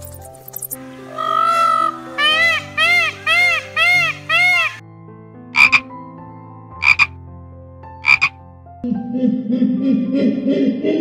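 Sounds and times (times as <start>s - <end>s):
peacock calling: 1.0s - 4.8s, 5.6s - 5.8s, 6.8s - 7.1s.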